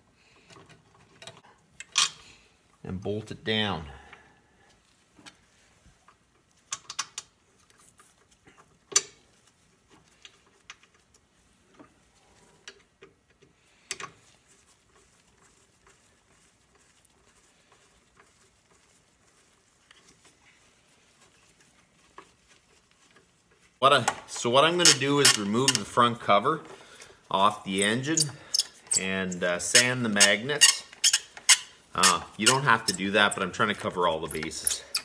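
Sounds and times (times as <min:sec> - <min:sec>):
hand tool clicking on bolts: 0:24.0 - 0:26.0, 0:27.7 - 0:35.0.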